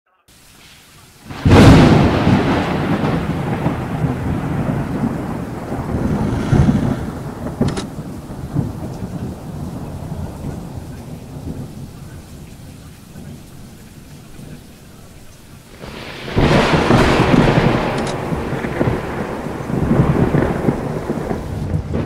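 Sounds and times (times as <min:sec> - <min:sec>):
low rumble with hiss: 0:00.3 - 0:21.8
loud crash: 0:05.8 - 0:07.8.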